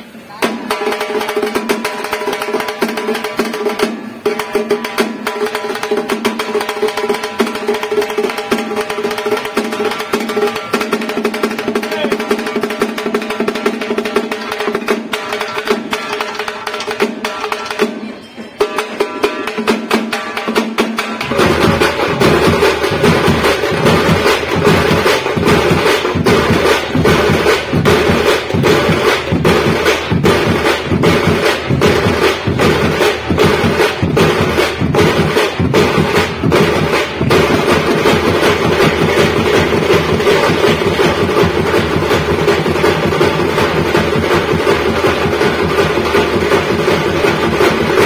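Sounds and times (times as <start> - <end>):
drum band playing: 0.3 - 48.0
frame drums: 0.3 - 48.0
snare drums: 0.3 - 48.0
bass drums: 21.0 - 48.0.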